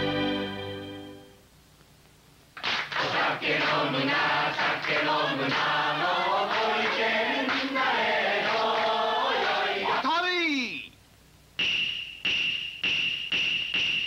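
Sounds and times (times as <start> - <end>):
hand clapping: 2.6 - 3.8, 4.7 - 5.8, 6.5 - 7.8
group singing in chorus: 2.9 - 10.0.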